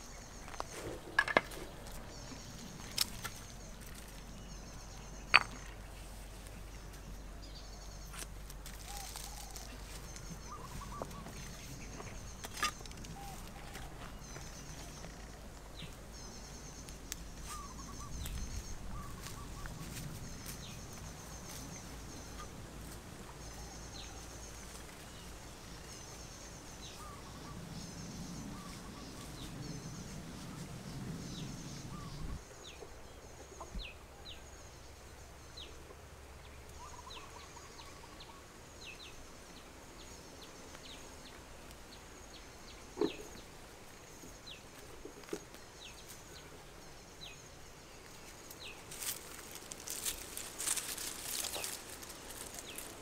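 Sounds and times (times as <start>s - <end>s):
birds chirping and trilling: 0.0s - 35.8s, 36.4s - 44.7s, 45.7s - 53.0s.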